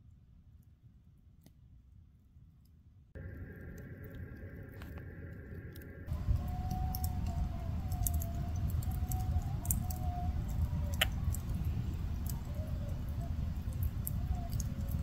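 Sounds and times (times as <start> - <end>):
distant wavering howl: 3.2 - 15.0
faint clicks: 3.2 - 15.0
low rumble: 3.2 - 15.0.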